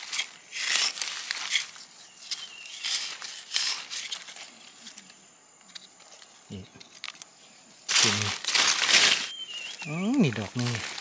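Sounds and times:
rustling dry forest litter: 0:00.0 - 0:11.0.

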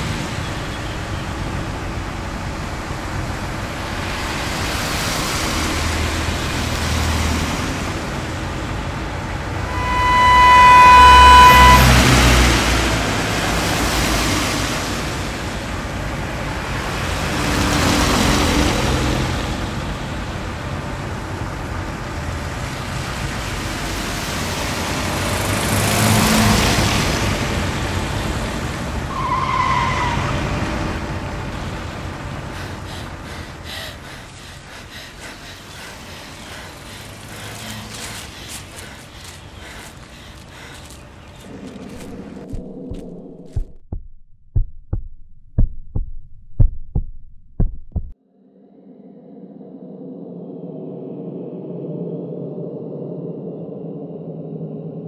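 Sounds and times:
road traffic noise: 0:00.0 - 0:43.7
held pitched tone: 0:09.6 - 0:12.7
short falling squeal: 0:09.6 - 0:12.8.

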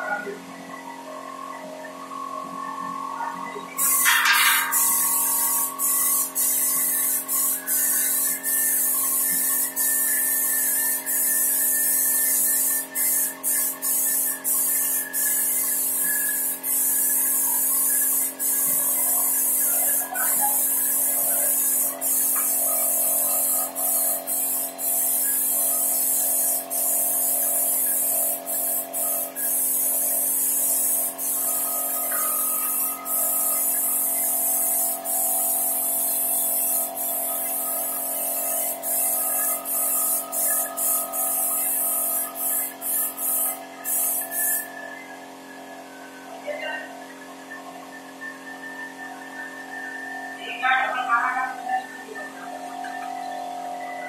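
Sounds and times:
spray gun hissing: 0:03.8 - 0:44.7.

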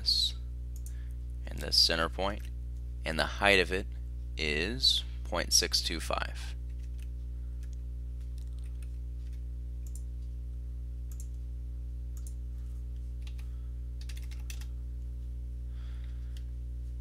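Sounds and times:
low electrical hum: 0:00.0 - 0:17.0
computer mouse clicks: 0:08.4 - 0:10.1, 0:11.1 - 0:11.4, 0:12.2 - 0:12.4
keyboard keystrokes: 0:14.0 - 0:14.7.

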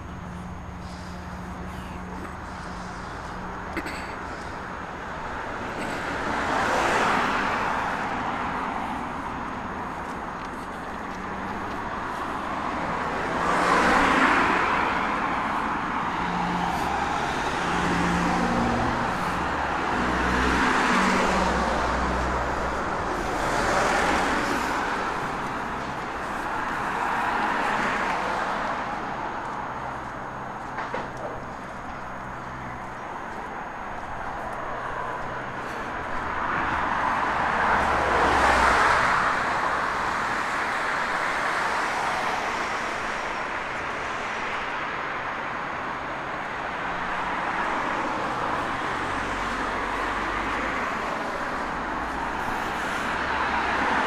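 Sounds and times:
heavy vehicle engine hum: 0:00.0 - 0:54.0
vehicles passing: 0:00.0 - 0:54.0.

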